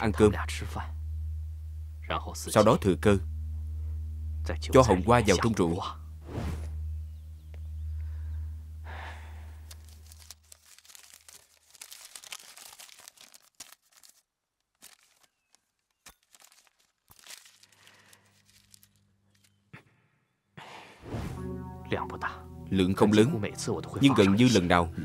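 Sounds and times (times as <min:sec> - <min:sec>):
low steady hum: 0:00.0 - 0:11.4, 0:21.4 - 0:25.0
paper packet crinkling: 0:09.6 - 0:19.6.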